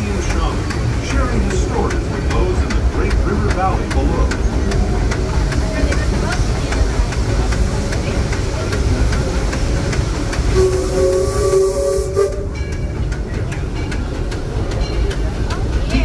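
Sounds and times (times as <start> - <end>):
steam hissing: 0.0 - 16.0
train rumbling on rails: 0.0 - 16.0
steam locomotive whistle: 10.4 - 12.8.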